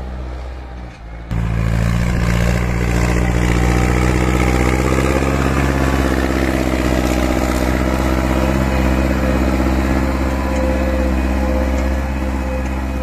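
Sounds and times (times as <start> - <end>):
small motor droning: 1.3 - 13.0.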